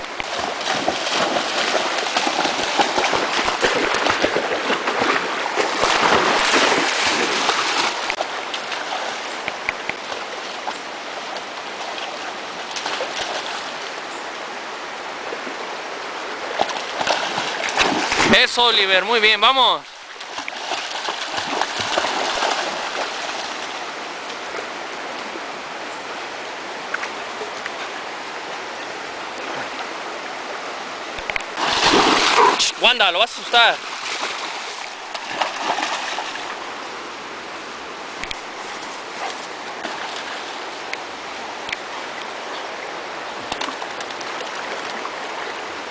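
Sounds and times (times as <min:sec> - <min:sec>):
puppy splashing in stream: 0:00.0 - 0:14.0, 0:16.3 - 0:18.6, 0:19.9 - 0:25.4, 0:31.5 - 0:36.7, 0:38.2 - 0:45.9
creek water running: 0:00.0 - 0:45.9
flowing stream rushing: 0:00.0 - 0:45.9.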